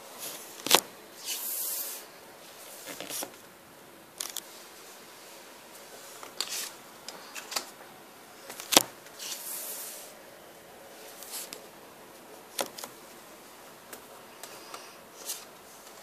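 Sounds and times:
cards sliding rustle: 0:00.2 - 0:03.4, 0:04.2 - 0:04.6, 0:05.9 - 0:07.8, 0:08.4 - 0:10.1, 0:11.1 - 0:11.6, 0:13.9 - 0:16.0.

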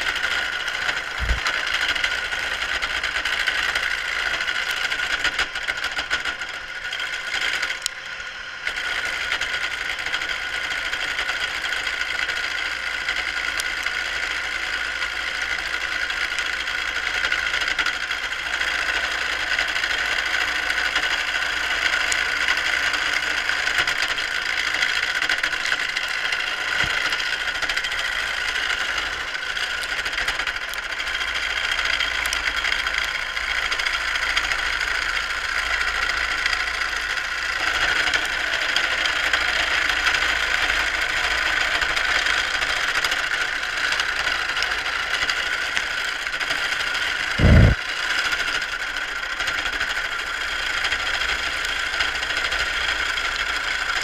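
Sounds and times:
lathe motor running: 0:00.0 - 0:47.8.

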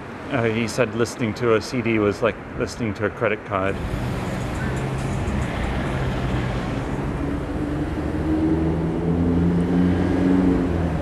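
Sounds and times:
traffic hum: 0:00.0 - 0:11.0
car engine running: 0:03.8 - 0:08.3.

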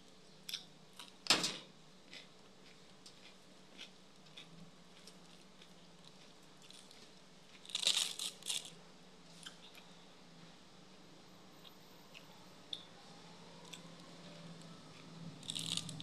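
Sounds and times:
person chewing food: 0:02.1 - 0:08.7, 0:14.9 - 0:16.0.

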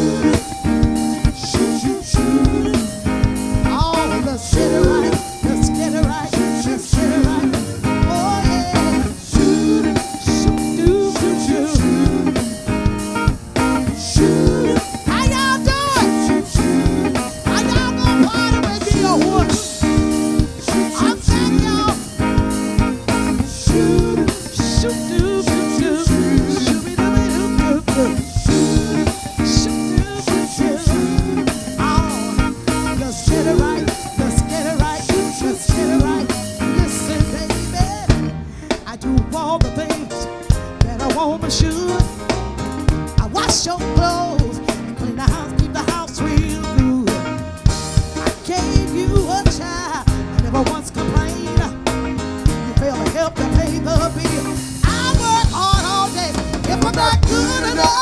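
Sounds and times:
drum kit beat: 0:00.0 - 0:58.0
electric bass: 0:00.0 - 0:58.0
woman singing into a microphone: 0:54.8 - 0:58.0.

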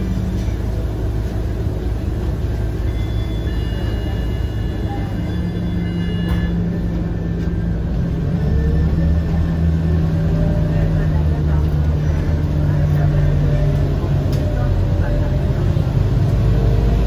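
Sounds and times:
bus engine and road rumble: 0:00.0 - 0:17.0.

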